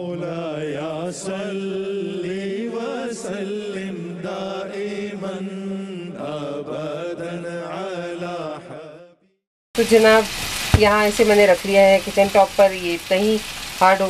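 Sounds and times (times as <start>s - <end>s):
chanted vocal melody: 0.0s - 9.2s.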